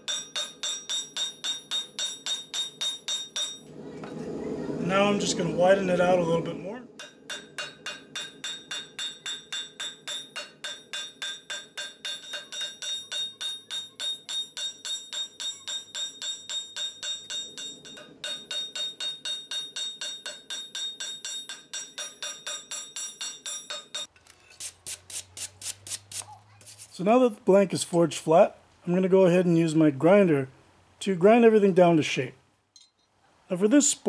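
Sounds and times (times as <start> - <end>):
hammer ringing on anvil: 0.0 - 3.7, 7.0 - 24.1.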